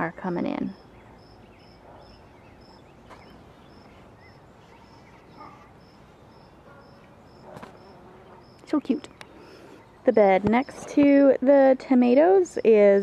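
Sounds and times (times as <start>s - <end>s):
high insect chirp: 0.7s - 10.8s.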